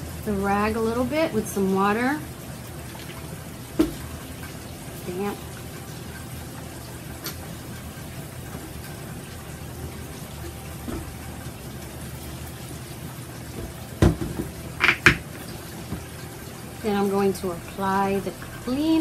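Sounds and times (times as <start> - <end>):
knock: 13.6 - 15.2.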